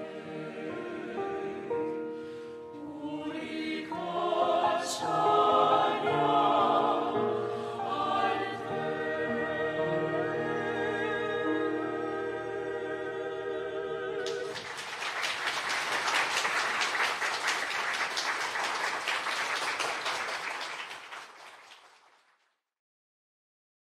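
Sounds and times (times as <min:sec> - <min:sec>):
choir holding chord: 0:00.0 - 0:14.9
audience applause: 0:14.2 - 0:22.4.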